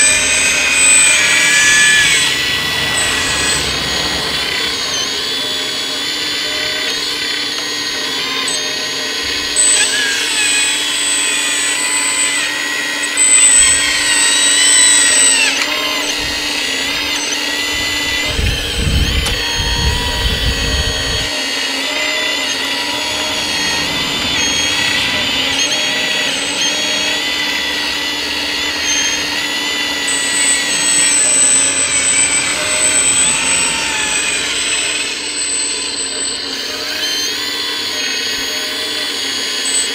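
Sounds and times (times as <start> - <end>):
hydraulic pump whining: 0.0 - 39.9
low rumble: 17.6 - 21.3.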